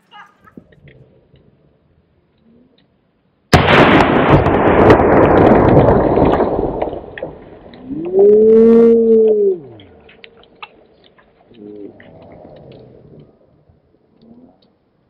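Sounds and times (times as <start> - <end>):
slowed-down explosion blast: 3.5 - 9.6
drawn-out voice-like cry: 8.0 - 9.8.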